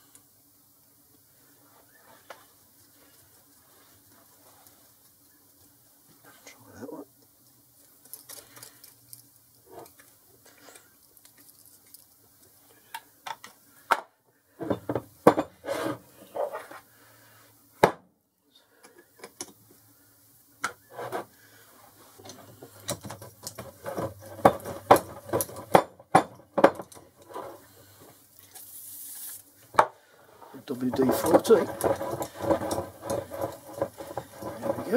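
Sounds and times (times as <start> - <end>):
aerosol spray hiss: 27.8 - 29.6.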